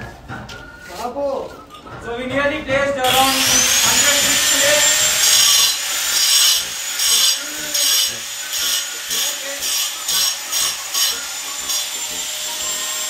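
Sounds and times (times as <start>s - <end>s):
rasping strokes on masonry: 3.0s - 13.0s.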